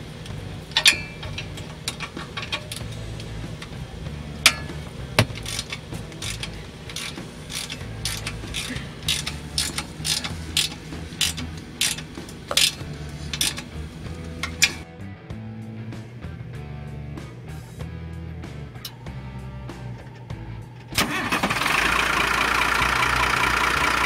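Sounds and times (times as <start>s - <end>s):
ratchet wrench clicking: 0.2s - 3.8s, 4.4s - 14.8s.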